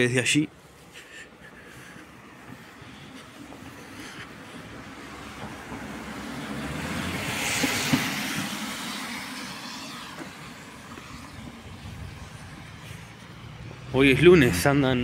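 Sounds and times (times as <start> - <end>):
car tyres hissing on wet road: 4.5 - 13.9.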